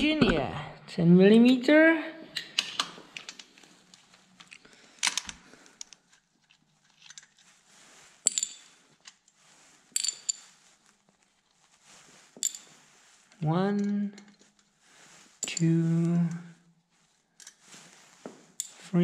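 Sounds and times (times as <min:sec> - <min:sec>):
steel bolts and washers clinking: 0:02.4 - 0:05.3, 0:06.1 - 0:07.4, 0:08.2 - 0:10.6, 0:12.3 - 0:14.7, 0:15.4 - 0:16.0, 0:17.4 - 0:17.6, 0:18.5 - 0:18.9.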